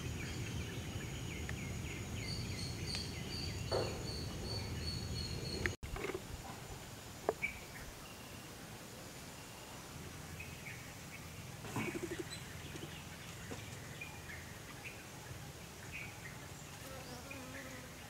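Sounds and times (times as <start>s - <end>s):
birds chirping: 0.0s - 5.8s
faint outdoor background: 0.0s - 18.0s.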